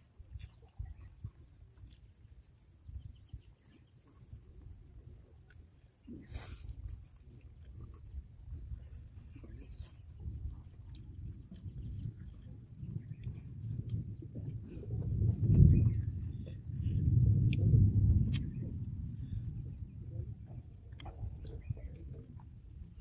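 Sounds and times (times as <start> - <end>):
insects chirping trill: 0.0 - 23.0
low rumble: 10.2 - 23.0.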